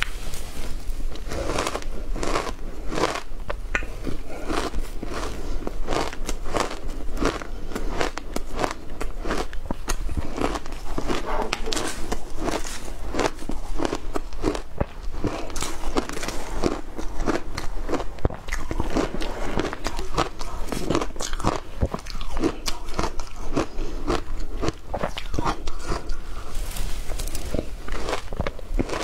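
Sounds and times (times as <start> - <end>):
person crunching shaved ice: 0.6 - 29.0.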